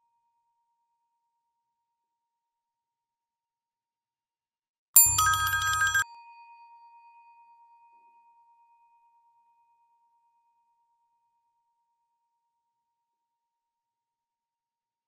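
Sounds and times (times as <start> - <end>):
elevator chime ding: 5.0 - 6.0.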